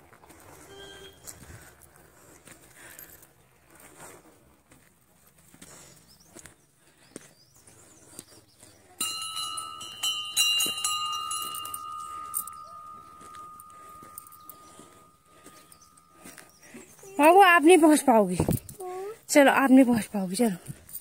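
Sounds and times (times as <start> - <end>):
metal temple bell ringing: 9.0 - 16.5.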